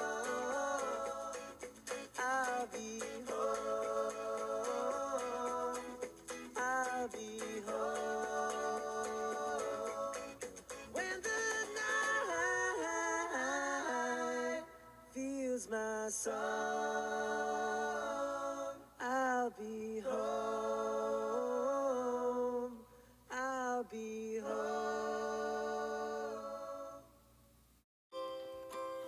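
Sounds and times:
person singing long notes: 0:00.0 - 0:01.5.

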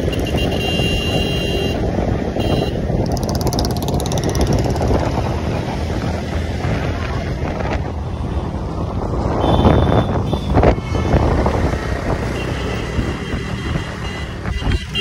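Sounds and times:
wind rush on microphone: 0:00.0 - 0:15.0
motorcycle engine running: 0:02.5 - 0:05.9.

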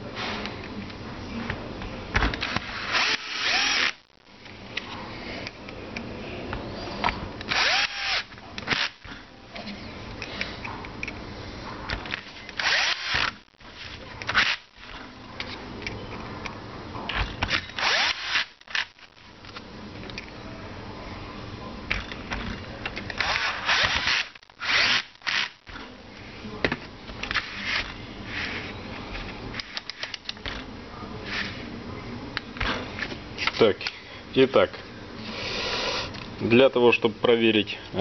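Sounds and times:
cordless drill driving screws: 0:02.8 - 0:04.0, 0:07.5 - 0:09.0, 0:12.6 - 0:13.4, 0:17.8 - 0:18.9, 0:23.2 - 0:25.5.

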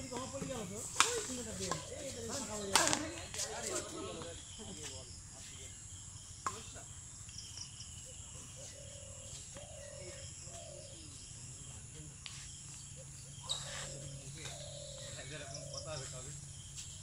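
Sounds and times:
bird calls: 0:00.0 - 0:17.0
crickets trilling: 0:00.0 - 0:17.0.

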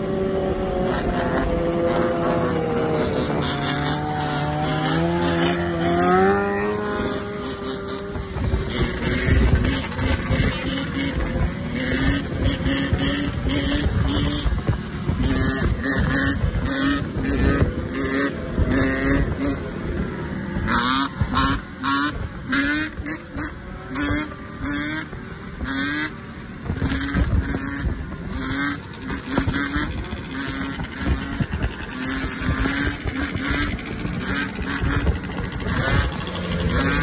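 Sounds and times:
motorbike engines revving: 0:00.0 - 0:37.0
rumble of engines and traffic: 0:00.0 - 0:37.0.

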